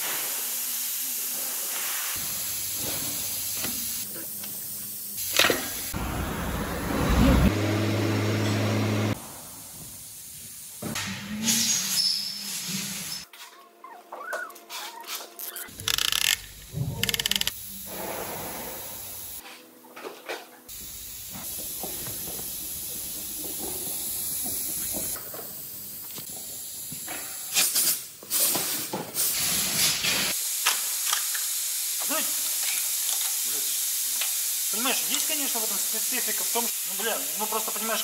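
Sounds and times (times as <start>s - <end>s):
workshop hiss: 0.0s - 13.3s, 15.6s - 19.8s, 20.7s - 38.0s
ratchet clicks: 15.7s - 17.6s.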